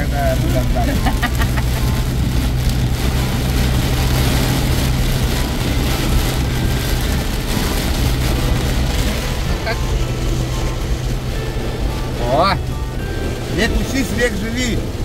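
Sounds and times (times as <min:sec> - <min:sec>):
car engine hum: 0:00.0 - 0:15.0
road noise: 0:00.0 - 0:15.0.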